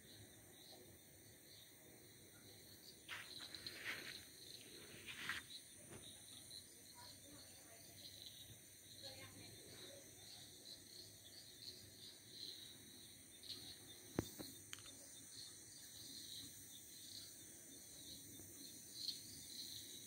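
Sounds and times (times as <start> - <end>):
night insects chirping: 0.0 - 20.0.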